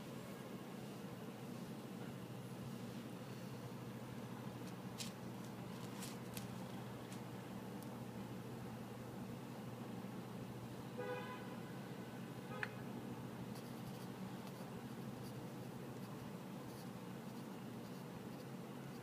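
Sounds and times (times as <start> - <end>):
pencil scratching on paper: 13.6 - 19.0.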